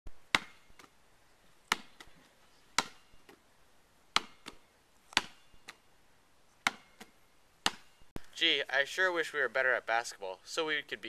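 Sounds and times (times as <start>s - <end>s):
basketball slapping on asphalt: 0.3s - 0.9s, 1.7s - 2.2s, 2.8s - 3.4s, 4.1s - 5.8s, 6.6s - 7.9s
ball slapping into hands: 6.6s - 8.3s.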